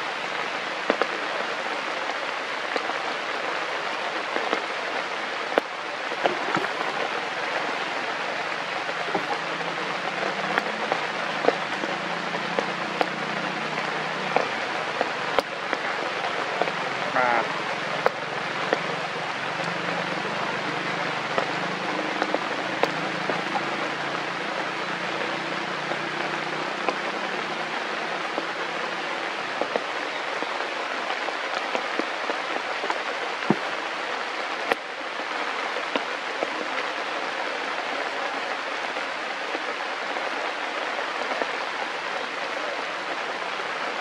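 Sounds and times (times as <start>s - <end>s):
rain on foliage: 0.0s - 44.0s
water drops ticking: 8.5s - 28.5s.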